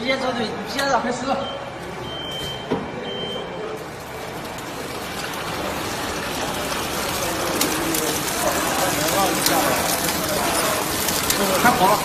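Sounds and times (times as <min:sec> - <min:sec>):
short high beeps: 0:01.4 - 0:03.6
wrapping machine running: 0:03.4 - 0:12.0.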